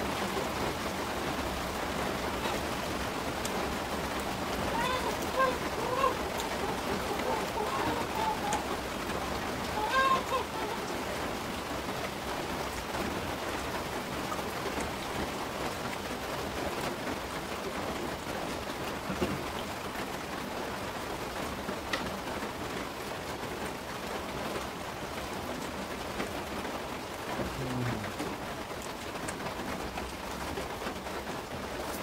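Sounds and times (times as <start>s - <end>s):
steady rain hiss: 0.0s - 32.0s.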